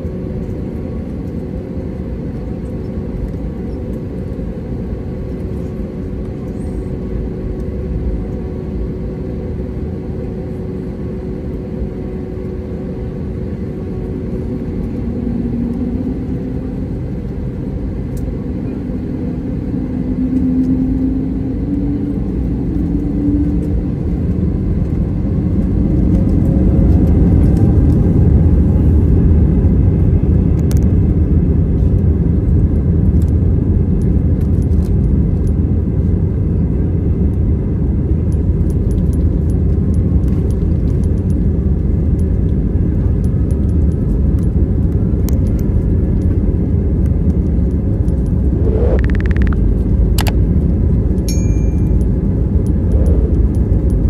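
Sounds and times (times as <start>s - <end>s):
jet engines rumbling in cabin: 0.0s - 54.0s
engine tone rising in pitch: 19.5s - 24.0s, 48.3s - 50.3s, 51.3s - 54.0s.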